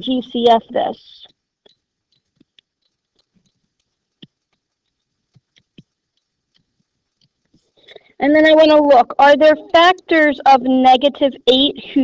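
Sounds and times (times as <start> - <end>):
stylus tapping on tablet screen: 1.3 - 7.7.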